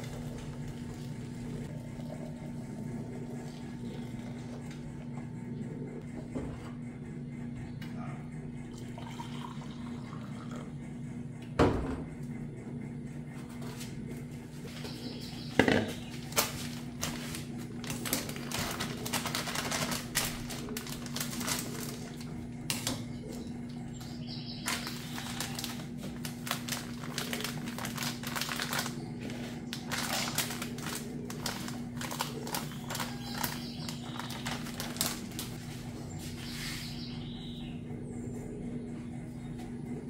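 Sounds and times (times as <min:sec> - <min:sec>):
steady low hum: 0:00.0 - 0:40.0
plastic bag crinkling: 0:16.0 - 0:22.8, 0:24.6 - 0:35.7.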